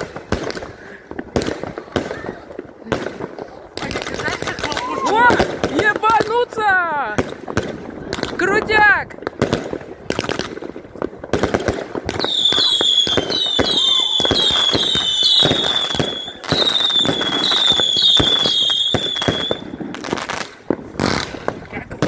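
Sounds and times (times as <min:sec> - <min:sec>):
fireworks bangs and crackling: 0:00.0 - 0:22.0
high whistling firework tone: 0:12.2 - 0:20.0.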